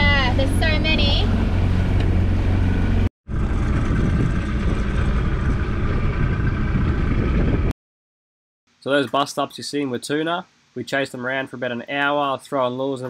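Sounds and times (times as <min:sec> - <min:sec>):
outboard motor running: 0:00.0 - 0:07.7
water noise: 0:00.0 - 0:07.7
wind noise: 0:00.0 - 0:07.7.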